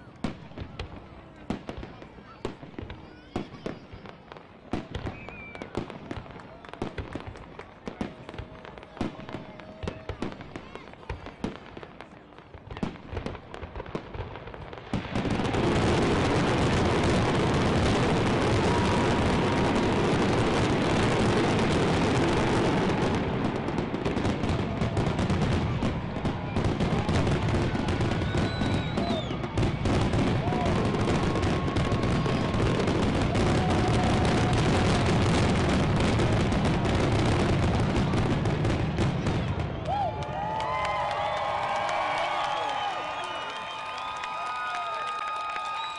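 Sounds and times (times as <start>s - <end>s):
fireworks bangs and crackle: 0.0s - 45.9s
high firework whistles: 2.3s - 5.9s, 15.0s - 37.9s, 42.1s - 45.9s.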